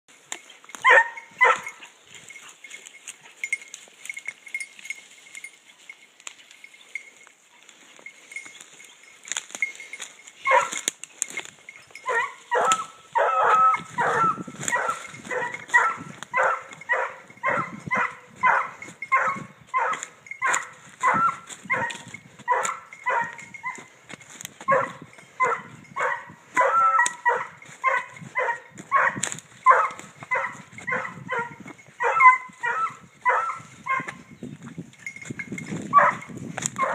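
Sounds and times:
hound baying: 0.8s - 2.6s, 10.0s - 10.9s, 11.8s - 34.3s, 35.9s - 36.9s.

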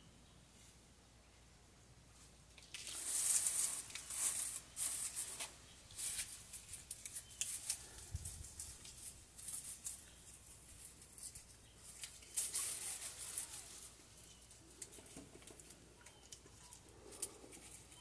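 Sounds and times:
dry rustling and crackling: 2.5s - 18.0s.

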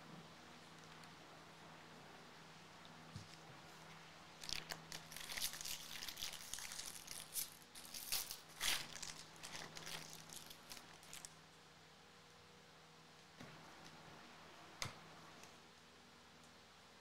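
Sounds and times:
foil wrapper tearing and crinkling: 4.4s - 11.3s.

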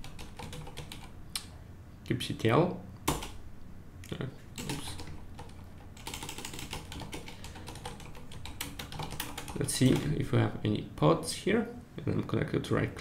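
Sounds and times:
keyboard typing: 0.0s - 1.1s, 3.1s - 3.4s, 4.5s - 10.2s.

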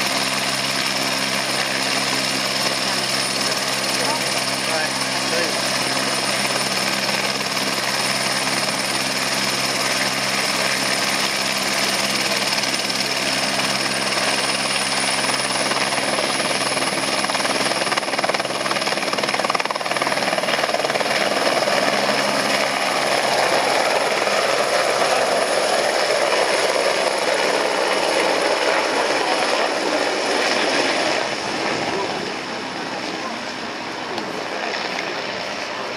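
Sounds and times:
helicopter rotor noise: 0.0s - 35.9s
helicopter turbine whine: 0.0s - 35.9s.

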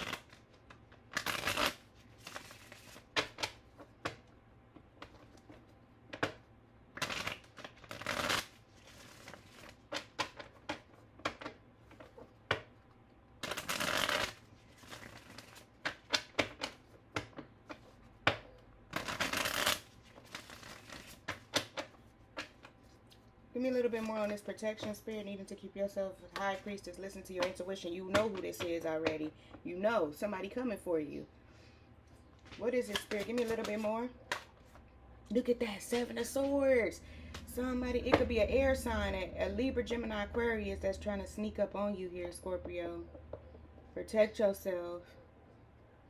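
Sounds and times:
cards being shuffled: 0.0s - 4.2s, 7.0s - 12.7s, 13.4s - 18.0s, 18.9s - 23.1s, 32.4s - 34.8s
cards tapping and clicking: 13.5s - 22.8s.

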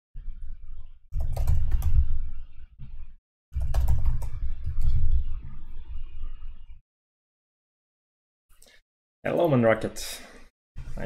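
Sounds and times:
typing on computer keyboard: 1.2s - 1.9s.

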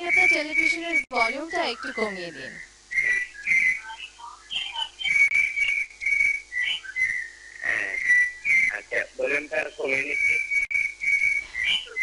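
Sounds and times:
high whistling feedback squeal: 9.9s - 12.0s.

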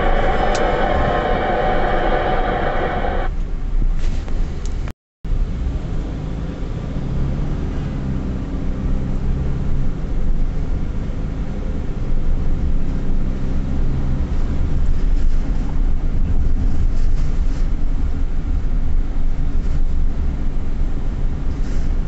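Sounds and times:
car engine rumble: 0.0s - 22.0s
tyres on the road: 0.0s - 22.0s.

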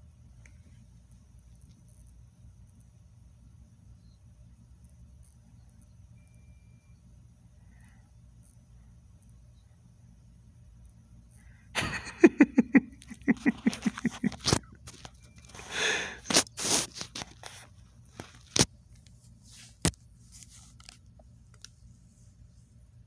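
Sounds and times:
breath: 7.6s - 8.2s, 11.3s - 11.7s, 15.6s - 16.3s
man chuckling: 11.8s - 14.8s.

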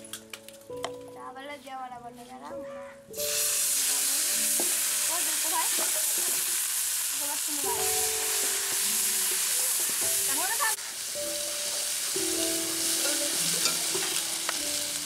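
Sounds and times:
paste sizzling in hot oil: 3.2s - 15.0s
metal spatula stirring: 12.8s - 14.5s.

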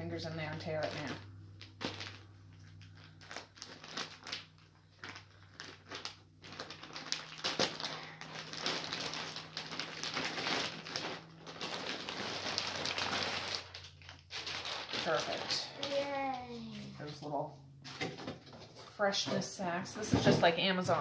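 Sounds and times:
plastic bag crinkling: 0.6s - 16.2s.

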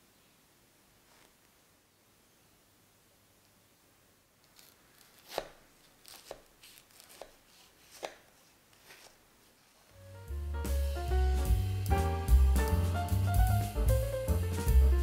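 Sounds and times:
knife cutting crisp pie crust: 4.5s - 9.0s.

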